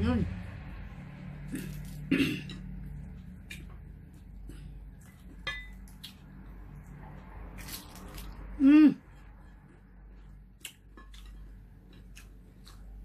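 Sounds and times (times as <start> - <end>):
clinks on plates and bowl: 5.4 - 5.8.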